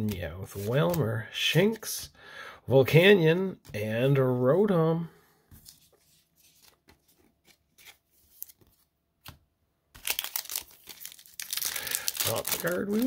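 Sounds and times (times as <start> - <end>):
cards tapping and rustling: 0.0 - 1.8, 10.0 - 13.0
foil wrapper tearing: 10.0 - 13.0.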